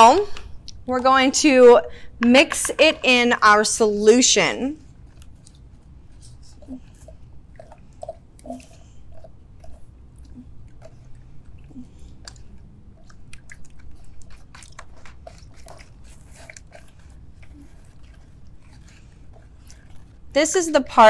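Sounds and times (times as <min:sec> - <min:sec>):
wet squelching and clicking slime: 0:04.9 - 0:21.0.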